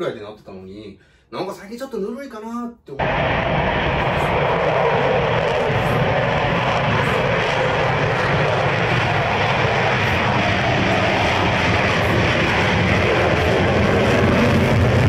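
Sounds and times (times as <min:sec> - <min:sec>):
loud jet engine noise: 0:03.0 - 0:15.0.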